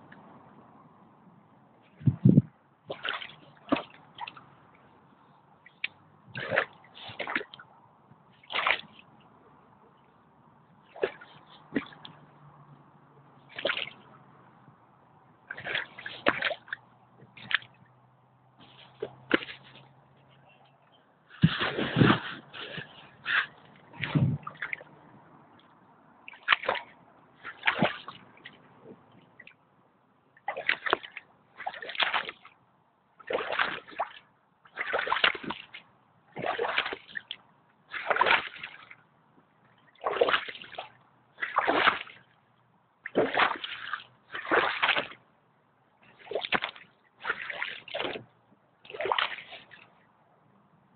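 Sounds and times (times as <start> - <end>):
boots splashing through icy water: 2.9 - 4.5, 6.3 - 7.6, 8.4 - 9.1, 10.9 - 12.2, 13.5 - 14.0, 15.5 - 17.8, 18.6 - 19.9, 21.3 - 24.9, 26.3 - 28.6, 30.4 - 32.6, 33.2 - 39.0, 39.9 - 42.3, 43.0 - 45.2, 46.1 - 49.9.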